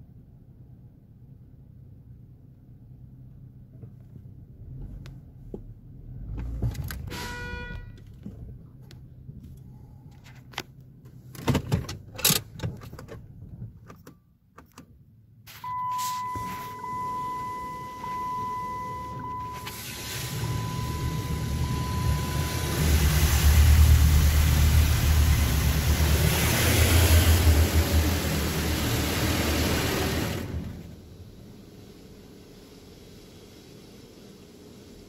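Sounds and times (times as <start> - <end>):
short pitched tone: 15.5 - 23.1
steady high whine: 15.5 - 28.0
car wash machinery rumbling: 15.5 - 35.0
water spray hissing on car: 19.0 - 35.0.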